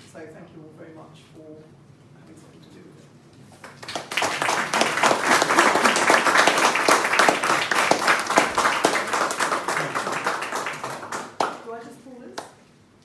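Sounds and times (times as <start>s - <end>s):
small group applauding: 3.5s - 12.6s.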